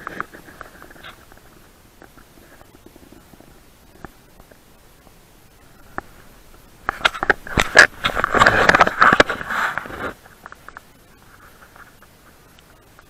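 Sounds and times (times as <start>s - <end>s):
dry grass brushing on microphone: 5.6s - 12.5s.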